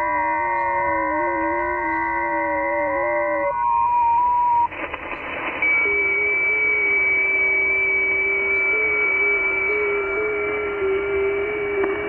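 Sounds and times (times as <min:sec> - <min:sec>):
radio band hiss: 0:04.5 - 0:12.0.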